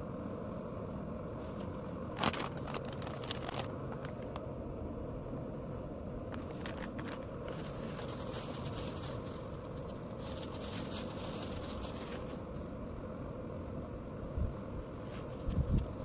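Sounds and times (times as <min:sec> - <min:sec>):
wind rush on microphone: 0:14.3 - 0:16.0.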